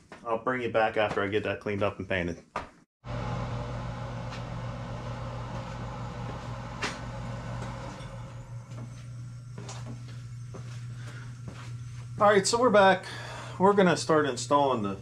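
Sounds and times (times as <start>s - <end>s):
low machine hum: 3.0s - 15.0s.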